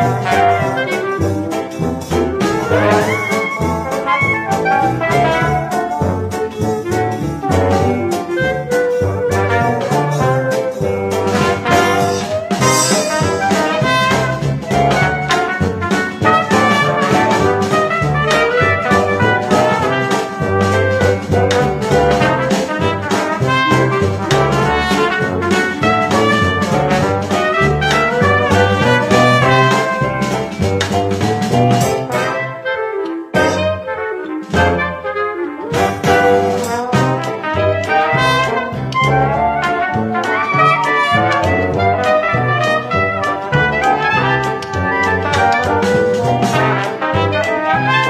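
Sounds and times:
jazzy brass music: 0.0s - 48.0s
cymbal crash: 11.8s - 14.2s.

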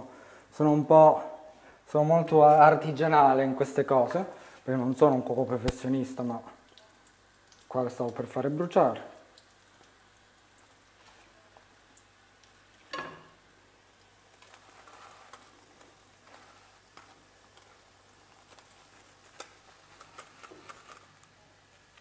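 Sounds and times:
doughnuts sizzling in oil: 0.0s - 22.0s
light clicks and taps of utensils: 6.6s - 8.2s, 9.3s - 22.0s.

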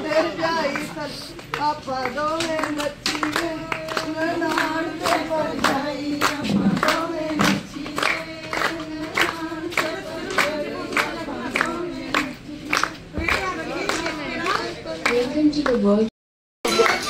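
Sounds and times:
women singing together: 0.0s - 15.8s
hands clapping in time: 16.7s - 17.0s.

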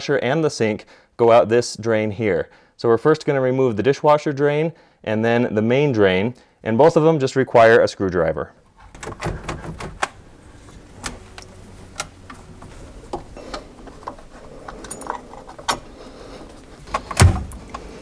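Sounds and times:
drain hose clicks and knocks: 8.9s - 10.2s.

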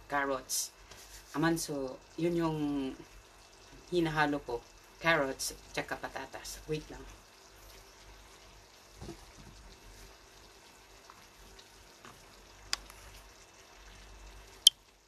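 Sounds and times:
faint sizzling in a pan: 0.0s - 15.0s.

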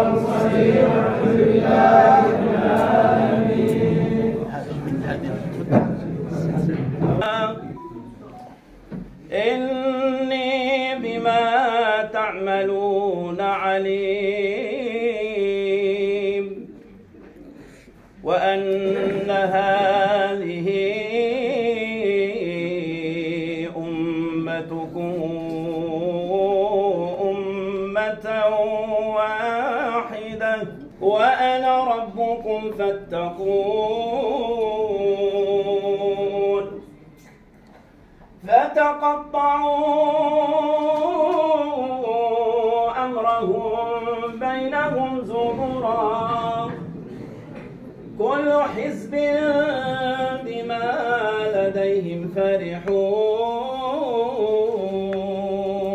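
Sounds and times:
men chanting together: 0.0s - 4.8s
man chanting religious recitation: 0.0s - 6.0s, 7.2s - 8.2s, 9.2s - 17.0s, 18.1s - 37.0s, 38.4s - 47.4s, 48.1s - 55.9s.

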